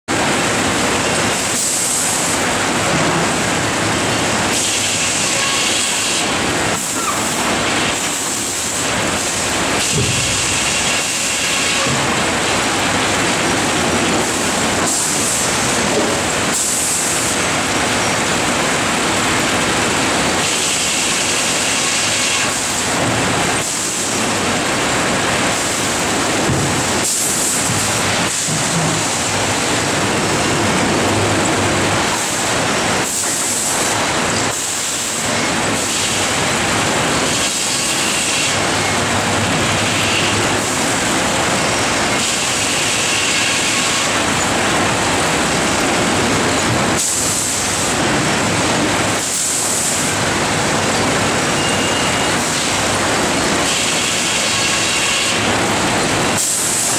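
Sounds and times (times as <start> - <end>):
conveyors and machinery running: 0.1 - 56.9.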